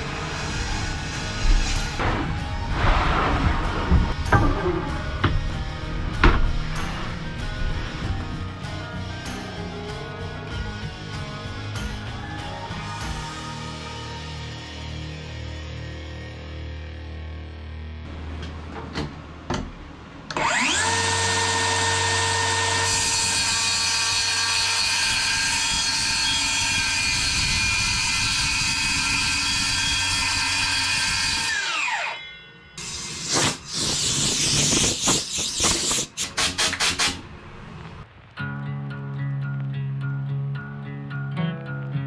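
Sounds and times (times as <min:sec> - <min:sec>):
circular saw cutting wood: 0:00.0 - 0:08.2, 0:20.3 - 0:32.2, 0:32.8 - 0:37.2
music: 0:00.0 - 0:18.1, 0:20.4 - 0:35.2, 0:38.4 - 0:42.0.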